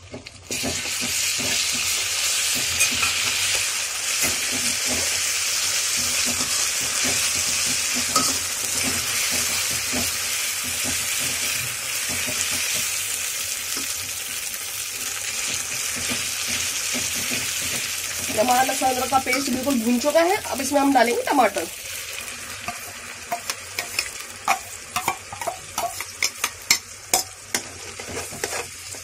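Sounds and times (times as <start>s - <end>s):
paste sizzling in hot oil: 0.0s - 29.0s
metal spoon scraping pan: 22.6s - 29.0s.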